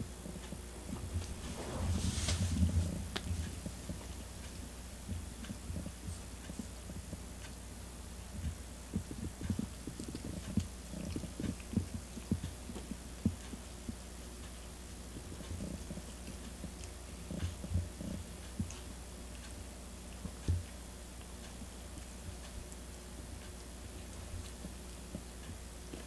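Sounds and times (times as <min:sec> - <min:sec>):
cat purring: 0:00.0 - 0:19.5
soft low thumps: 0:00.5 - 0:06.2.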